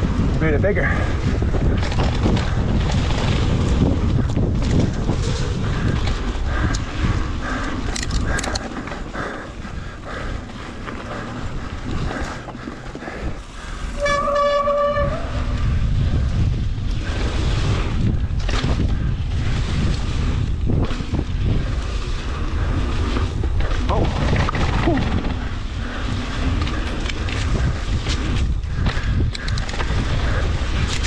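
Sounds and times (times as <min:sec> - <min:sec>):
tyres rumbling on dirt: 0:00.0 - 0:14.6, 0:16.6 - 0:31.0
wind buffeting microphone: 0:00.0 - 0:31.0
steady horn-like tone: 0:13.8 - 0:15.7.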